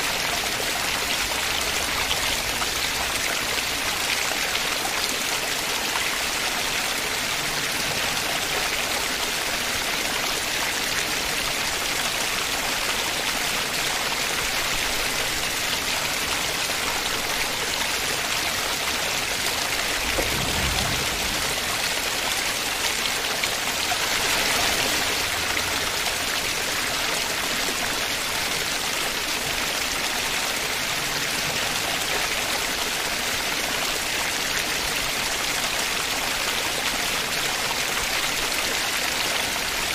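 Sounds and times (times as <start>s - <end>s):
waterfall splashing on rock: 0.0s - 39.9s
low rumble: 19.8s - 23.1s.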